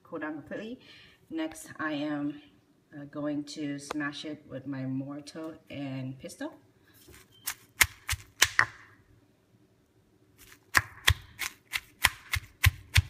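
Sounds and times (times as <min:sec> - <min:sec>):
stone pestle pounding in mortar: 0:10.8 - 0:13.0.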